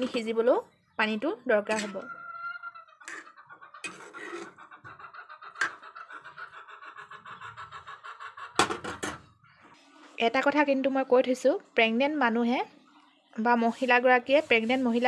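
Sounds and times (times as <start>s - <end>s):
metal spatula scraping pan: 1.7s - 2.1s, 3.0s - 5.0s, 5.6s - 5.8s.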